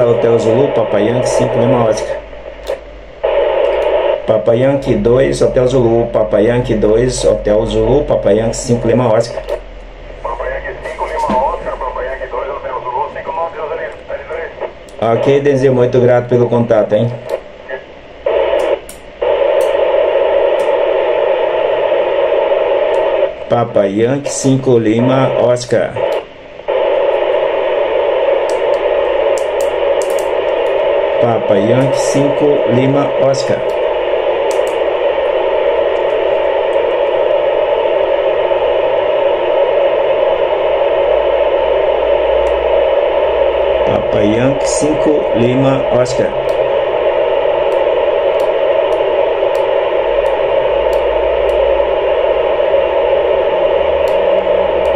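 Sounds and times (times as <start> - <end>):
radio receiver hiss: 0.0 - 54.9.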